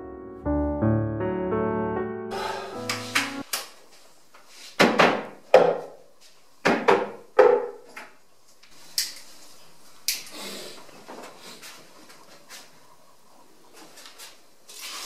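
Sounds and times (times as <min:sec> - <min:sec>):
piano music: 0:00.0 - 0:03.5.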